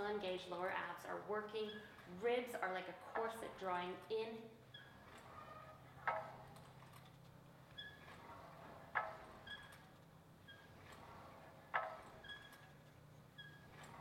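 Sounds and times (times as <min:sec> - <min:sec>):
faint high squeaks of springs: 0:01.5 - 0:02.2, 0:04.6 - 0:07.1, 0:07.7 - 0:14.0.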